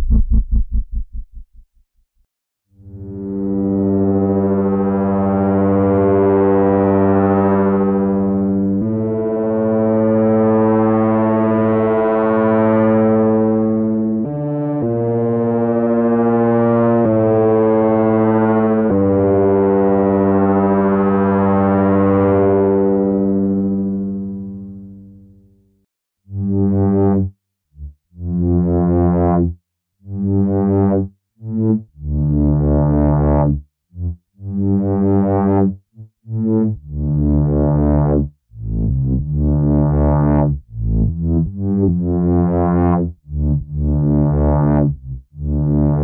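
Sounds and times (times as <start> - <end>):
synthesizer pad low notes: 2.8 - 25.5.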